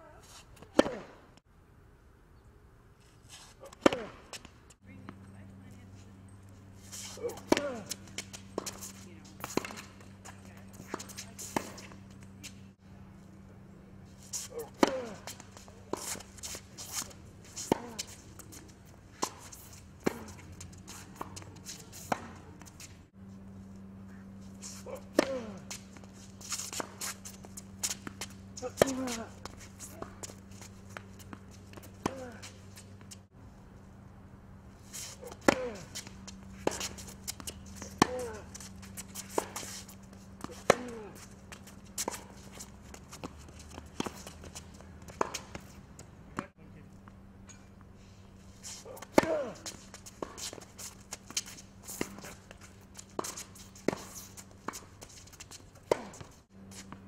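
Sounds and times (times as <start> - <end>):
racket striking tennis ball: 0.6 - 1.2, 3.6 - 4.5, 7.0 - 12.6, 14.4 - 23.0, 24.7 - 33.2, 35.0 - 46.5, 48.8 - 57.0
tennis ball bouncing: 0.6 - 1.2, 3.7 - 5.2, 7.2 - 12.6, 14.6 - 22.9, 25.0 - 33.2, 35.2 - 46.5, 49.0 - 57.0
shoes shuffling on court: 3.0 - 13.3, 13.9 - 33.8, 34.7 - 57.0.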